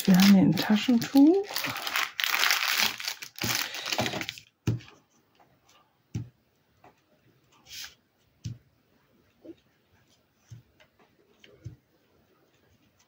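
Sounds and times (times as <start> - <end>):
tissue pack crinkling: 0.0 - 4.5.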